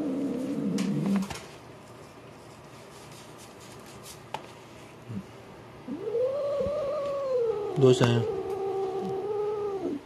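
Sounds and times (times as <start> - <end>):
cat yowling: 5.9 - 10.0.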